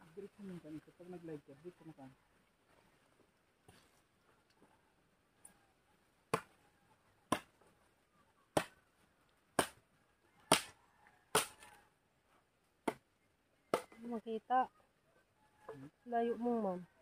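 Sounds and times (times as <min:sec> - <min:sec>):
machete chopping wood: 0:06.3 - 0:06.6, 0:07.3 - 0:07.6, 0:08.5 - 0:08.8, 0:09.5 - 0:09.8, 0:10.5 - 0:11.8, 0:12.8 - 0:13.1, 0:13.7 - 0:14.0.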